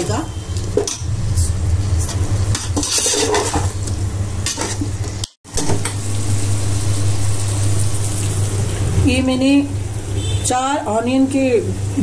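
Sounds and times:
curry sizzling: 0:01.6 - 0:12.0
ladle scraping metal pot: 0:02.5 - 0:03.8
steady low hum: 0:05.6 - 0:10.4.

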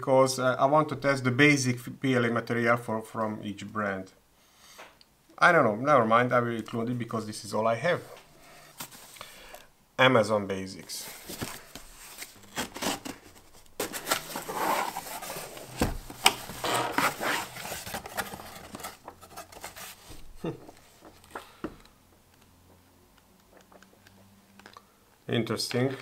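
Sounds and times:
cardboard and paper rustling: 0:08.7 - 0:09.2, 0:11.0 - 0:21.8.

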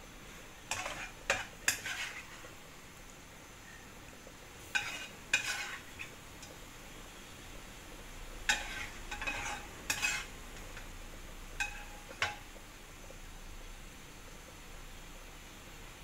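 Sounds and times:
utensil scraping a wok: 0:00.3 - 0:02.6, 0:04.6 - 0:06.6, 0:08.4 - 0:12.6.

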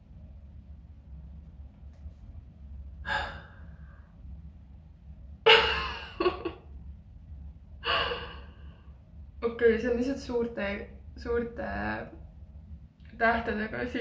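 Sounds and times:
woman gasping and sighing: 0:03.1 - 0:03.6, 0:07.8 - 0:08.6.

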